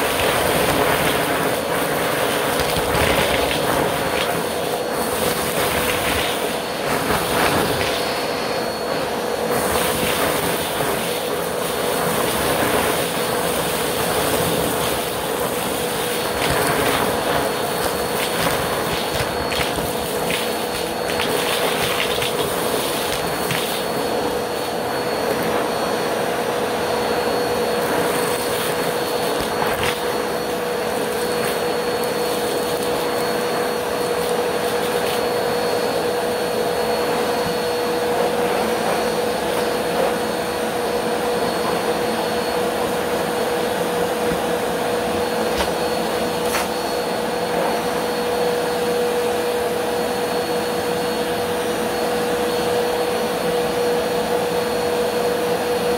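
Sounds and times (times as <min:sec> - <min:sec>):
glitter sucked up by hose: 0:00.0 - 0:25.6
vacuum cleaner humming: 0:00.0 - 0:55.9.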